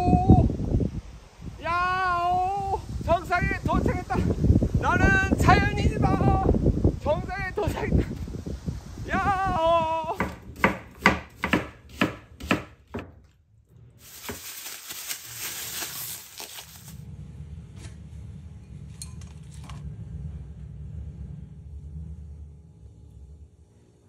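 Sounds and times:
low steady hum: 0:00.0 - 0:24.0
knife chopping on plastic board: 0:10.2 - 0:13.2
plastic bag crinkling: 0:14.0 - 0:17.0.

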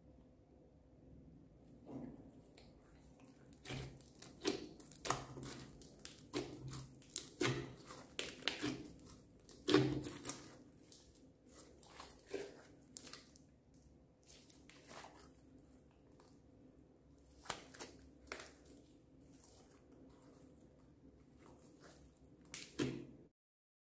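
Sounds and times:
slime squishing: 0:02.1 - 0:13.5, 0:14.2 - 0:15.3, 0:17.2 - 0:23.2.

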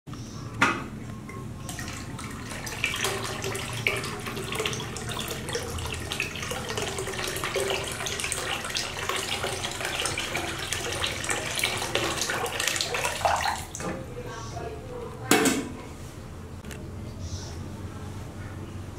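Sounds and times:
water pouring into basin: 0:01.7 - 0:13.8.

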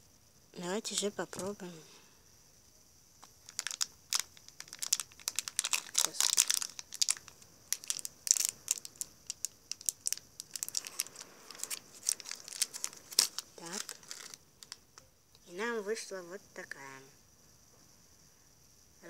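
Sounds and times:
plastic sachet crinkling and tearing: 0:03.2 - 0:14.8.

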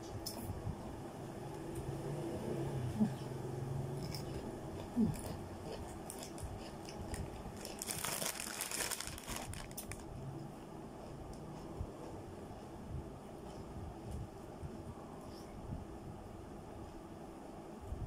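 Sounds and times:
plastic packet crinkling: 0:07.1 - 0:10.1.

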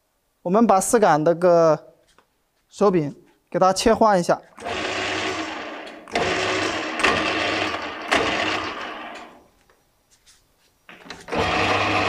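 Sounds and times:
lathe motor hum and gear whine: 0:04.6 - 0:09.4, 0:11.3 - 0:12.0.

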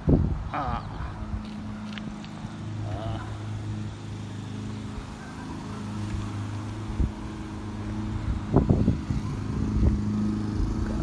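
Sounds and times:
engine hum: 0:00.0 - 0:11.0.

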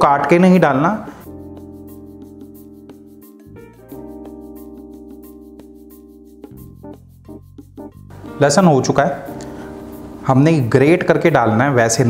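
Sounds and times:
light steady beat: 0:01.2 - 0:10.4
sustained keyboard chords: 0:01.2 - 0:12.0.

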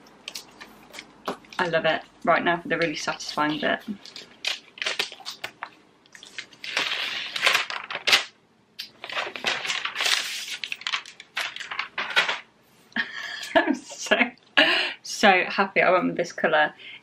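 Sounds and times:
protective wrap tearing rustle: 0:04.0 - 0:12.4.

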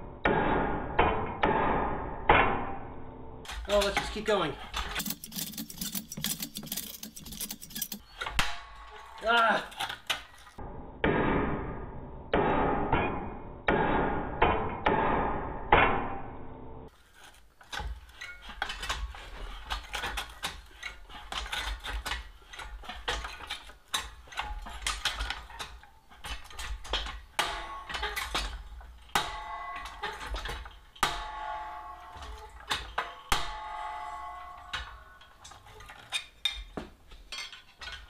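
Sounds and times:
metal shrinker clacking: 0:04.9 - 0:08.0
steel strip ringing: 0:04.9 - 0:09.6.

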